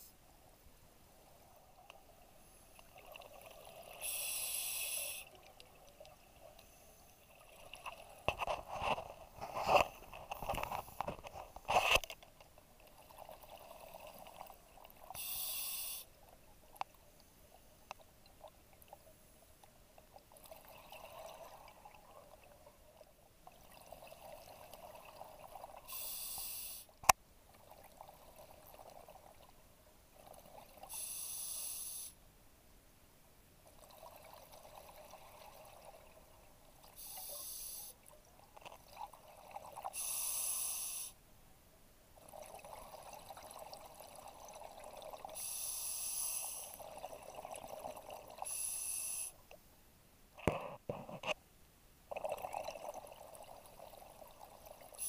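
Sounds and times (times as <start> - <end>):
regulator hissing inhalations: 4.0 - 5.3, 15.2 - 16.1, 25.9 - 26.9, 30.9 - 32.2, 37.0 - 38.0, 40.0 - 41.2, 45.4 - 46.8, 48.4 - 49.4
exhaled bubbles gurgling: 42.2 - 45.4, 46.6 - 48.7, 52.1 - 55.0.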